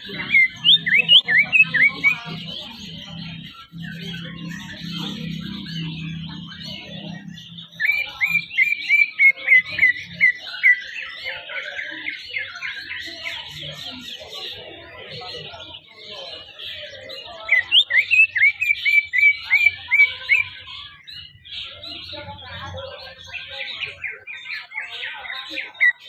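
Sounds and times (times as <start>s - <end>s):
bird singing whistled notes: 0.0s - 3.0s, 3.6s - 12.6s, 17.5s - 21.0s
busy bird twittering: 0.0s - 26.0s.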